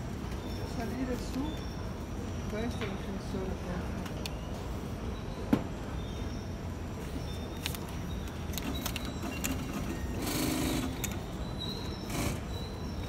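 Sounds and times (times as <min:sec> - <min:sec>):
mechanical hum: 0:00.0 - 0:13.0.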